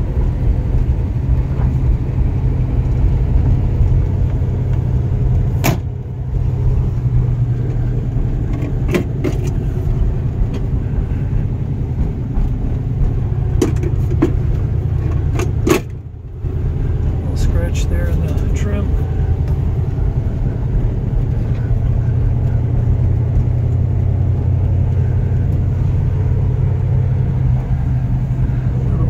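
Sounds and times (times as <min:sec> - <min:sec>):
car engine idling: 0:00.0 - 0:29.0
interior trim clicks and knocks: 0:00.7 - 0:16.4.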